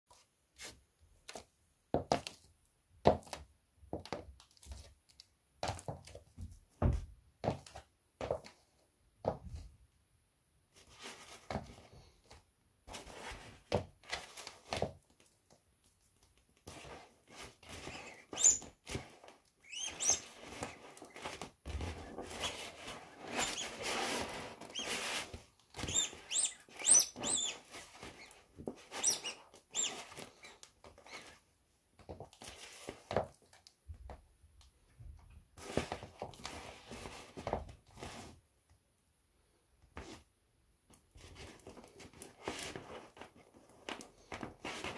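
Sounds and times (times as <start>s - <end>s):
heel thudding on floor: 5.6s - 8.5s
inflatable toy squeaking and creaking: 17.8s - 19.0s, 19.6s - 31.3s.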